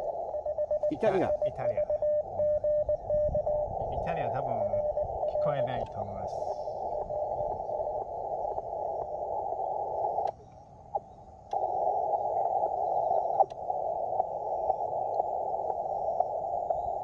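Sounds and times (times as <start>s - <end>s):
muffled radio static hiss: 0.0s - 17.0s
small clicks: 10.2s - 11.8s.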